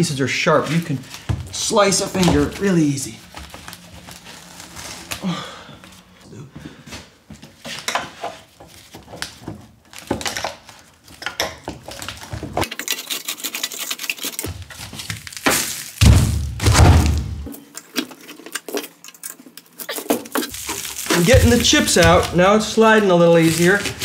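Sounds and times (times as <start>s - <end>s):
steel cover sections scraping: 12.6s - 15.3s, 17.5s - 24.0s
metal chips grinding: 12.6s - 16.0s, 17.5s - 22.6s.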